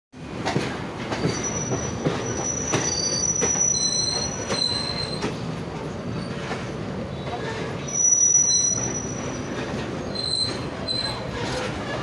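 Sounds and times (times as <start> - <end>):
train wheels rumbling: 0.2 - 12.0
wheels knocking on rail joints: 0.3 - 7.7
high-pitched wheel squeal: 1.2 - 5.3, 7.4 - 11.7.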